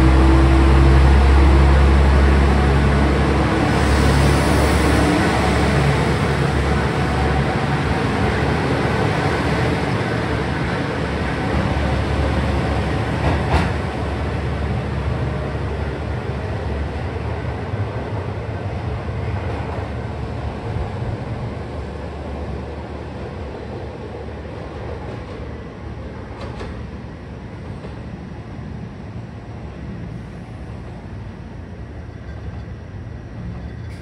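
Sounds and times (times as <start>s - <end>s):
train wheels rolling: 0.0s - 14.6s
diesel railcar engine hum: 0.0s - 34.0s.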